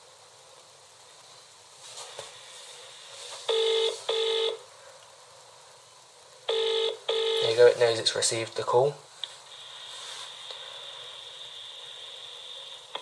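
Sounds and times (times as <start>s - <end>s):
telephone ringback tone: 3.5s - 4.6s, 6.5s - 7.6s.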